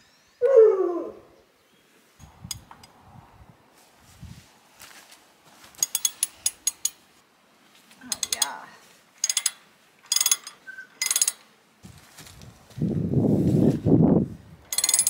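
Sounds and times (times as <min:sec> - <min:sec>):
ratchet wrench clicking: 0:08.1 - 0:08.6, 0:09.2 - 0:11.5, 0:14.7 - 0:15.0.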